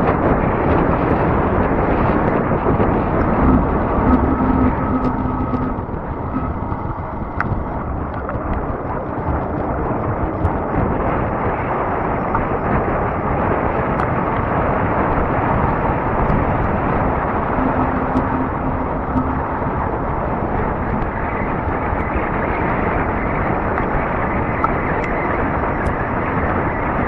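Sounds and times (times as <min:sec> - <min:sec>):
steady hum: 0:00.0 - 0:27.0
wind rushing over microphone: 0:00.0 - 0:27.0.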